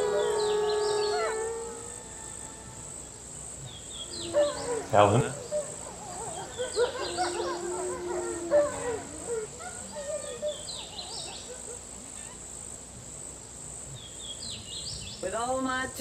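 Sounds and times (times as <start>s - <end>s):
chirping calls: 0.0s - 12.7s
high insect drone: 0.0s - 16.0s.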